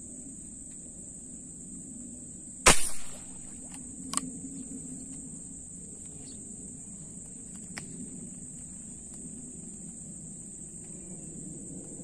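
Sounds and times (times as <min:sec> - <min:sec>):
high insect buzz: 0:02.6 - 0:10.8
speargun firing snap: 0:02.7 - 0:03.8.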